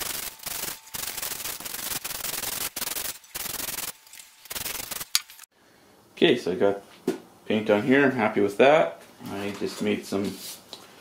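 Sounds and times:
spray paint can hissing: 0.0 - 5.5.

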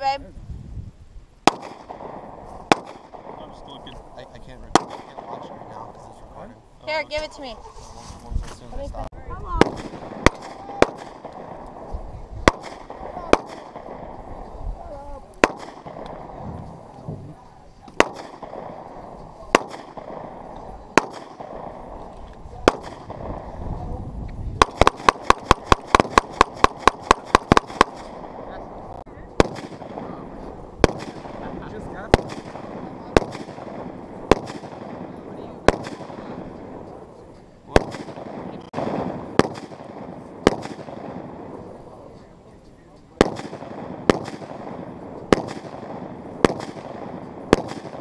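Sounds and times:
rifle shots: 1.4 - 3.8, 4.7 - 5.9, 9.5 - 14.3, 15.4 - 16.4, 17.9 - 23.6, 24.6 - 36.9, 37.7 - 41.8, 43.2 - 48.0
gunshots: 1.4 - 7.4, 9.5 - 14.4, 15.4 - 16.9, 17.8 - 23.7, 24.6 - 42.1, 43.1 - 48.0.

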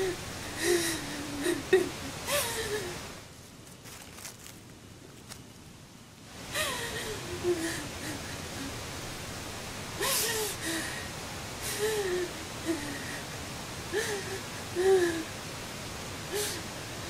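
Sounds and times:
woman moaning and gasping: 0.0 - 3.0, 6.5 - 8.7, 10.0 - 13.2, 13.9 - 15.3, 16.3 - 16.7.

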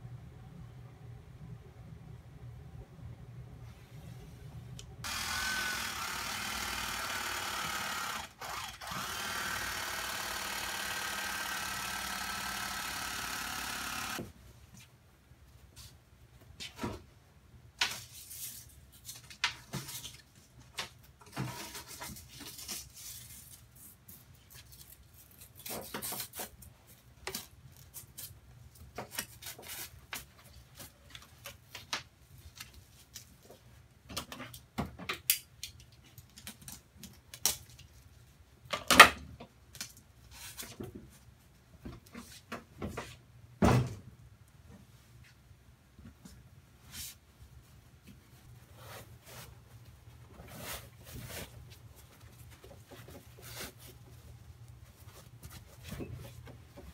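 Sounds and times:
electric knife cutting foam: 5.0 - 14.3.

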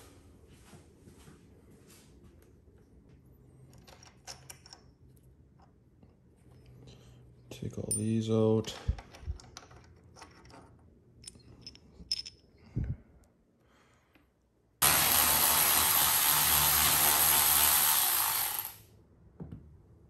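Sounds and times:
small bolts clicking and clinking: 3.6 - 5.8, 7.8 - 12.7
cordless electric ratchet running: 14.8 - 18.8.

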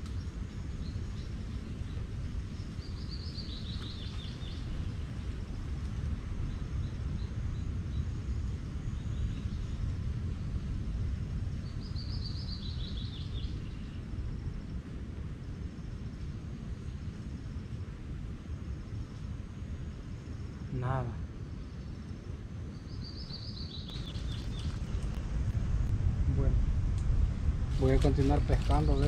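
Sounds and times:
steady low rumble: 0.0 - 29.0
bird singing: 0.1 - 5.3, 11.5 - 14.1, 20.7 - 25.2.

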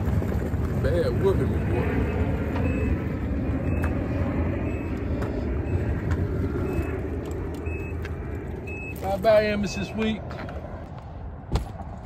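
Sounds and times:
motor vehicle rumble: 0.0 - 12.0
faint high beeps: 2.0 - 4.0, 4.6 - 5.0, 6.6 - 7.0, 7.6 - 8.0, 8.6 - 9.2.

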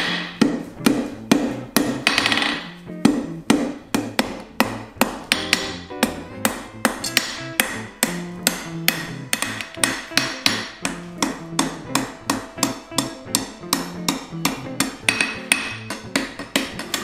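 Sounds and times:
hammer striking metal on anvil: 5.0 - 17.0.

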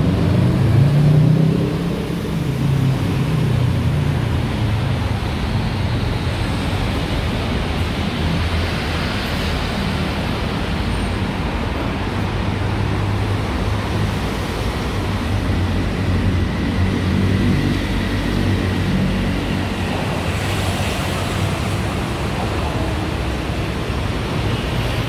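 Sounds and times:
road traffic passing: 0.0 - 25.0.

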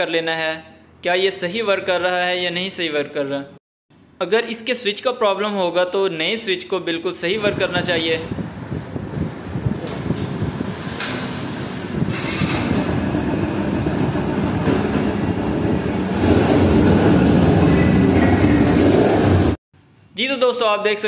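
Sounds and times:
motorcycle engine running: 11.6 - 19.6.

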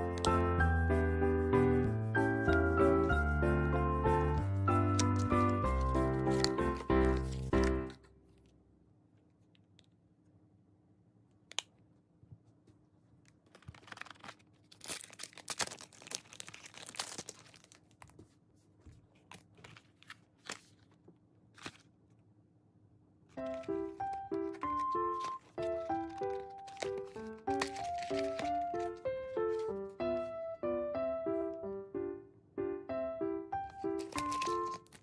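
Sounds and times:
plastic film peeled and torn: 4.9 - 7.8, 13.4 - 18.2, 23.4 - 29.8, 33.7 - 35.0
plastic crinkling: 4.9 - 8.0, 13.3 - 18.4, 19.1 - 22.0, 23.4 - 30.3, 33.7 - 35.0.

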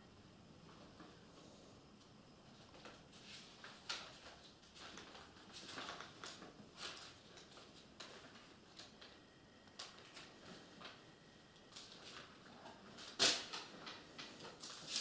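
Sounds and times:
book pages rustling: 2.5 - 9.2.

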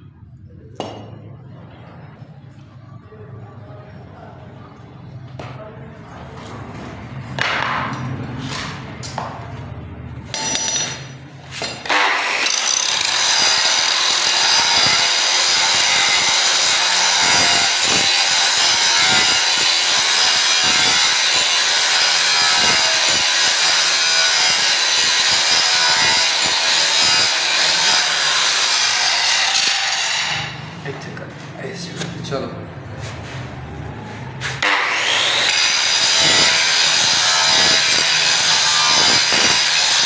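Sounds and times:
angle grinder grinding steel: 11.8 - 30.6, 34.6 - 40.0.

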